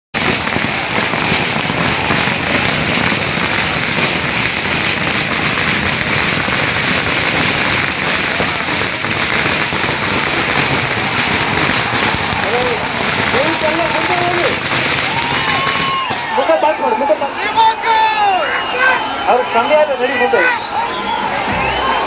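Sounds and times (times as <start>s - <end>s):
dense steady crackling: 0.2s - 16.5s
crowd cheering and screaming: 0.2s - 22.0s.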